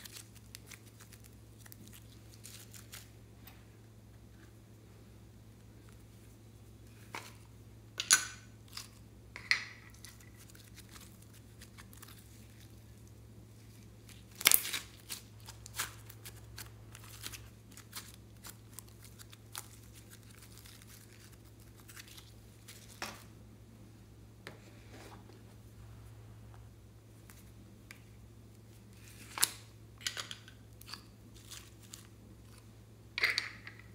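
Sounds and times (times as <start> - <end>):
slime crackling: 0.0 - 3.2, 10.0 - 23.0.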